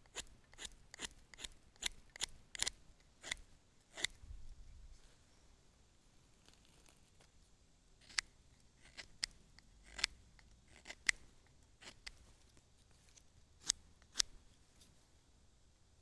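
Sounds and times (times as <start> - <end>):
knife shaving wooden stick: 0.0 - 4.1, 8.8 - 14.3.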